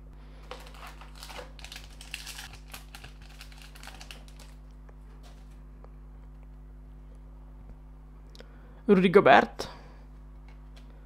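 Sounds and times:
foil wrapper crinkling: 0:00.4 - 0:04.6.

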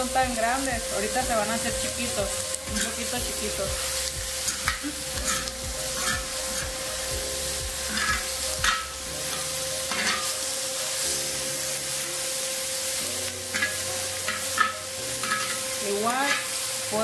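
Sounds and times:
meat sizzling on hot steel: 0:00.0 - 0:17.0
spatula scraping metal disc: 0:07.9 - 0:08.9.

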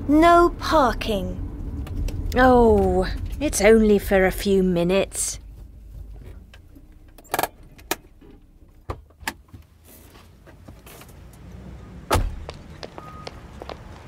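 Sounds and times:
low rumble: 0:00.0 - 0:07.0
car door slam: 0:12.1 - 0:12.5.

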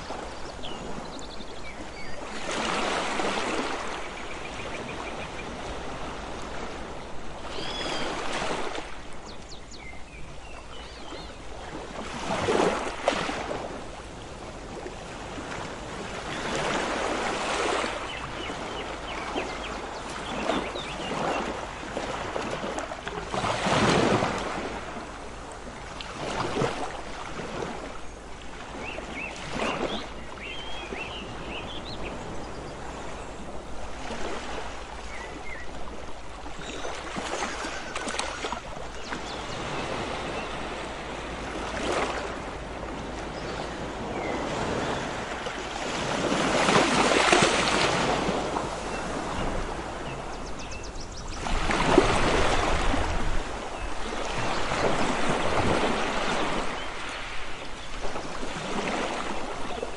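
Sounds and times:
sea waves breaking on beach: 0:00.0 - 0:59.9.

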